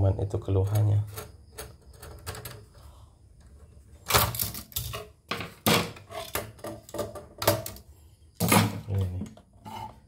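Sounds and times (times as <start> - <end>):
metal parts clicking and knocking: 0.6 - 2.7, 4.1 - 7.8.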